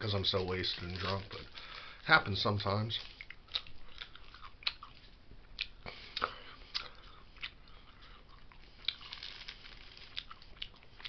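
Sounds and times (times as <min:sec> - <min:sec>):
person chewing meat stick: 0:03.0 - 0:11.0
wet mouth clicks and crackles: 0:03.1 - 0:11.0.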